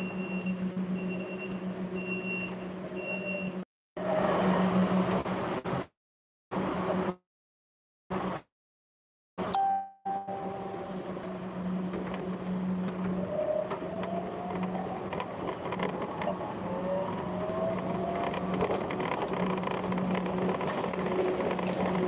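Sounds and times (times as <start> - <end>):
forklift motor whine: 0.0 - 5.2, 9.4 - 22.0
rattles and clicks: 11.2 - 22.0.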